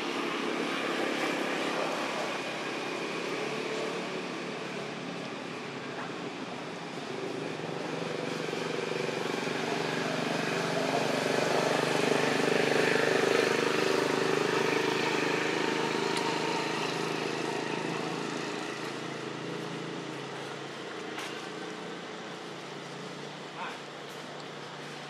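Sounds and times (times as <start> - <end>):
engine passing by: 0.0 - 25.0.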